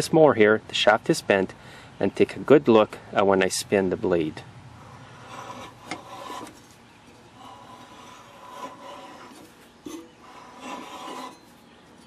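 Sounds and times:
mower engine scraping: 4.7s - 12.0s.

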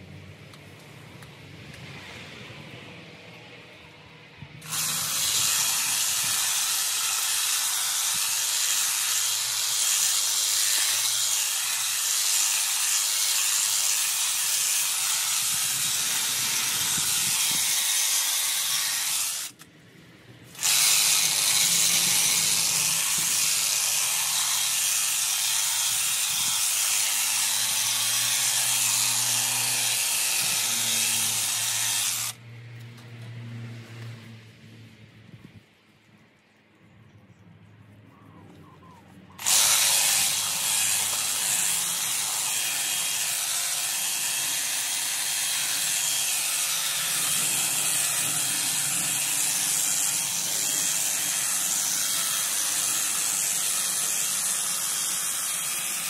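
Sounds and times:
hedge trimmer cutting: 4.6s - 19.7s, 20.5s - 32.4s, 39.4s - 56.0s.

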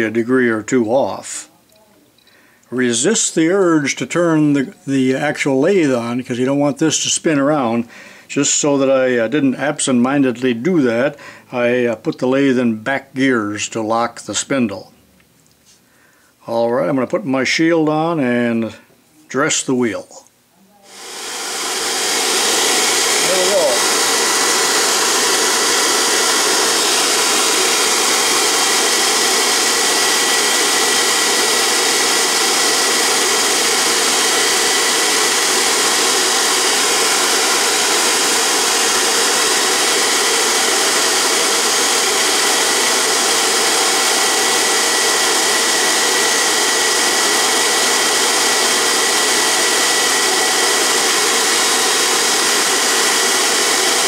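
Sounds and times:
grinder motor whirring: 20.9s - 54.0s.

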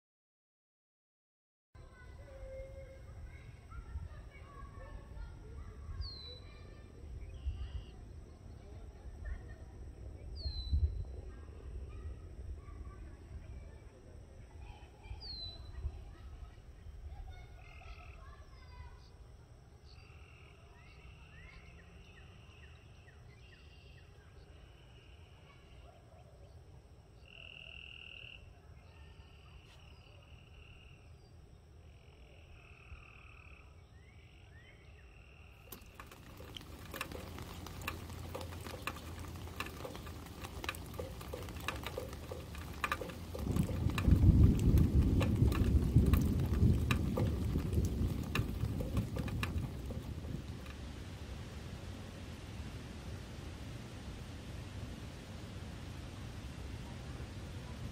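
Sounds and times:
wind noise on microphone: 10.4s - 11.4s, 35.7s - 51.1s
frogs trilling: 31.9s - 50.8s.

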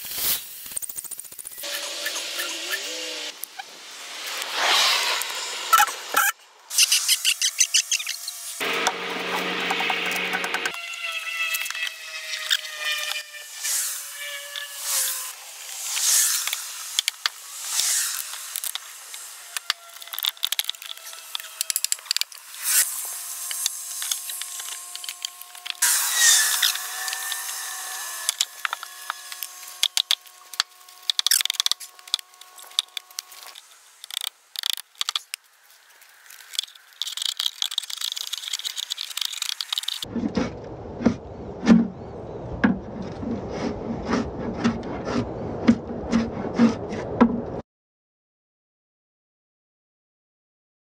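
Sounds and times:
drawknife scraping wood: 42.7s - 47.3s.

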